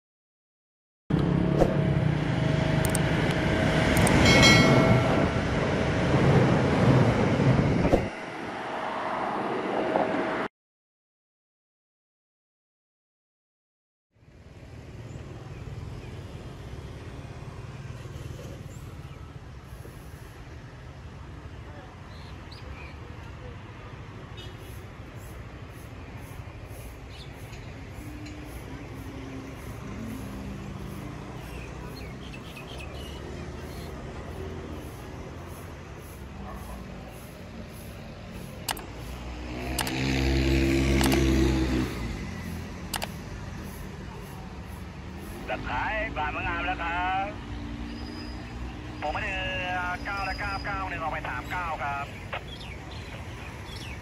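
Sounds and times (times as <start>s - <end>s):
sharp clicks: 2.8s - 3.1s, 4.0s - 4.2s, 38.6s - 40.2s, 40.9s - 41.4s, 42.9s - 43.2s
vehicle engine passing: 24.7s - 46.7s.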